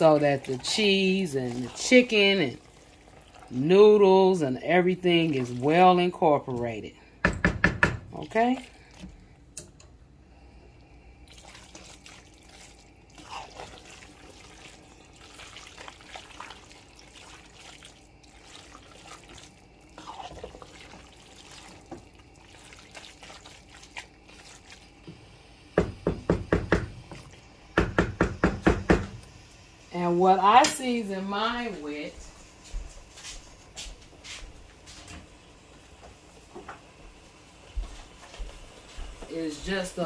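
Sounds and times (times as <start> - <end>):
wet squelching of stirred noodles: 0.0 - 7.2, 8.2 - 9.6, 10.3 - 25.2.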